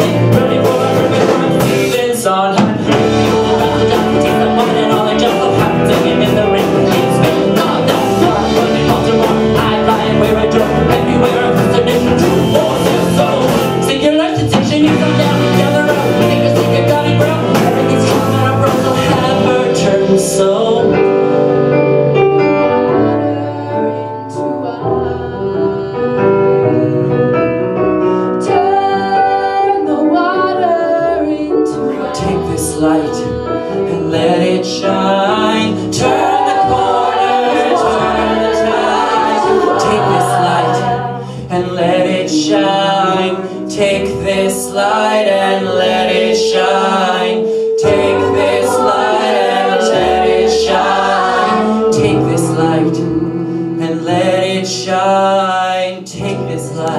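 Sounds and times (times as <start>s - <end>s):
drums and cymbals: 0.0s - 20.2s
people singing: 0.0s - 21.8s, 22.8s - 27.3s, 28.4s - 56.9s
live rock band playing: 0.0s - 23.1s, 34.3s - 54.5s
keyboard: 0.0s - 56.9s.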